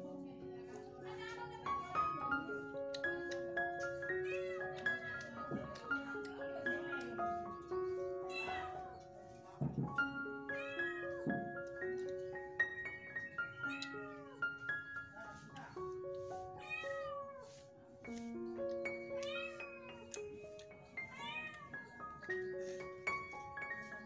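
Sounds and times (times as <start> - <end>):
background music of held notes: 0.0 - 24.0
cat meowing: 16.6 - 17.6, 21.0 - 21.8.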